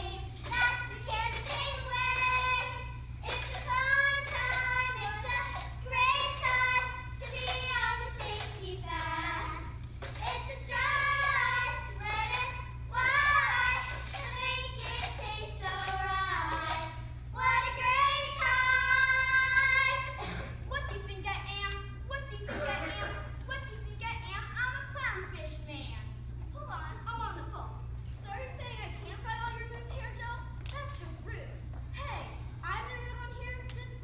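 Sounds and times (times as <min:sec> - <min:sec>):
children singing: 0:17.4 - 0:20.2.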